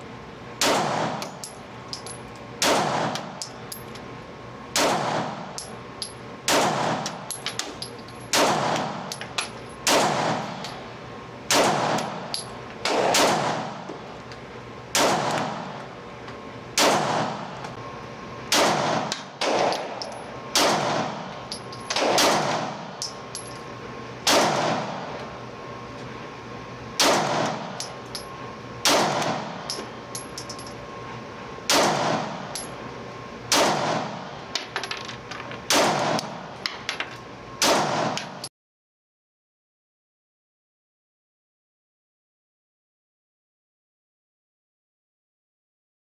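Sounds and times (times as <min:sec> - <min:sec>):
pistol shots echoing indoors: 0:00.6 - 0:01.2, 0:11.5 - 0:12.1, 0:12.9 - 0:13.8, 0:15.0 - 0:15.6, 0:16.8 - 0:17.4, 0:18.5 - 0:19.9, 0:21.9 - 0:22.8, 0:24.3 - 0:24.9, 0:27.0 - 0:27.7, 0:31.7 - 0:32.3, 0:33.5 - 0:34.2.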